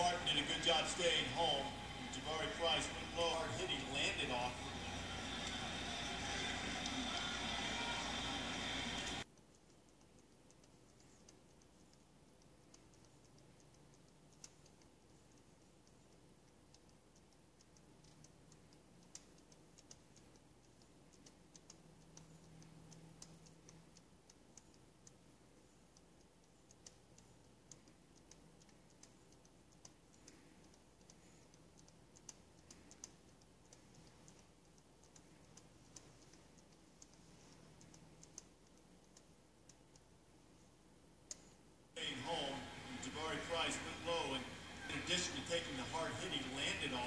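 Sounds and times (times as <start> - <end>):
light ticks and clicks: 0.0 - 47.0.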